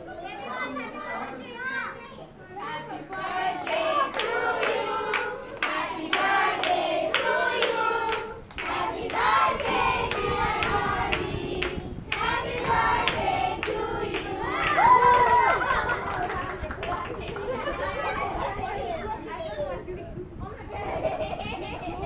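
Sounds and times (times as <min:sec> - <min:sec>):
group singing: 0:02.9 - 0:14.8
people clapping: 0:03.1 - 0:17.8.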